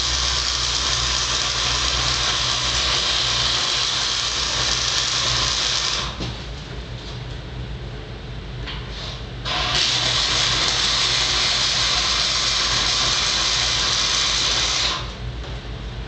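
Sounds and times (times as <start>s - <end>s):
arc welding crackling and hissing: 0.0s - 6.5s, 8.9s - 15.2s
steady low hum: 0.0s - 16.0s.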